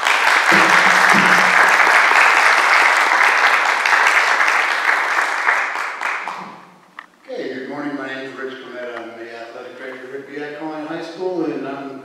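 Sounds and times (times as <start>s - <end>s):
audience applause: 0.0s - 6.8s.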